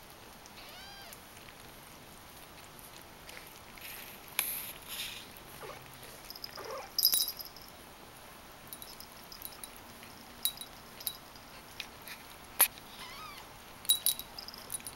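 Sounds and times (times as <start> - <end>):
kittens mewing: 0.6 - 1.2, 12.8 - 13.6.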